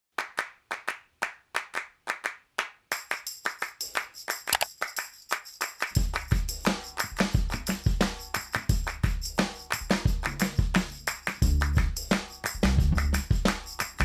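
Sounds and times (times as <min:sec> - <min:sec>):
handclap rhythm: 0:00.1 - 0:14.0
heavy bass beat: 0:10.0 - 0:14.0.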